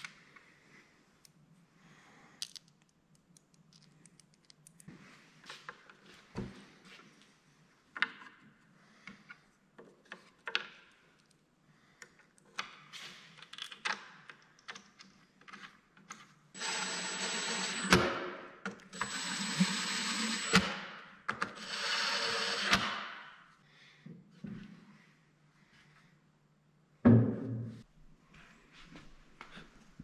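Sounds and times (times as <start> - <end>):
impact driver driving screws: 16.6 - 18.2, 19.0 - 20.8, 21.5 - 23.1.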